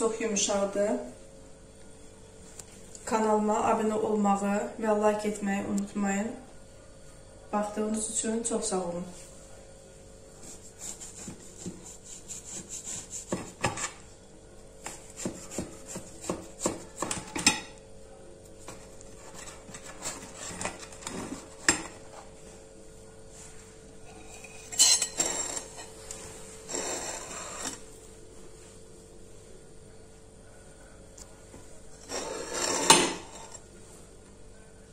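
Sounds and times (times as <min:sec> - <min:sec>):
knife scraping glass dish: 0:24.1 - 0:25.9, 0:26.7 - 0:27.8, 0:32.0 - 0:33.6.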